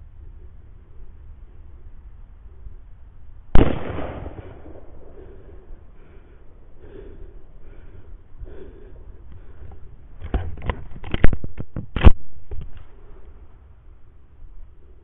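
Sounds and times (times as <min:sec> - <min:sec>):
rifle shot with echo: 0:03.5 - 0:05.4.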